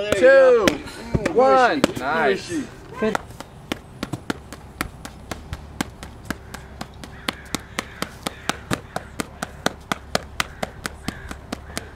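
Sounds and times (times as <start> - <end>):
boxing gloves striking focus mitts: 3.0 - 11.9.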